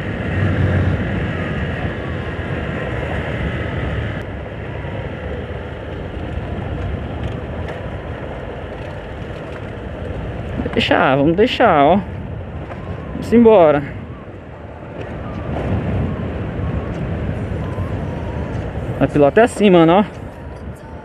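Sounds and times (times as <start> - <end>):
wind rush on microphone: 0.0 - 21.0
tyres on loose dirt: 4.7 - 13.9.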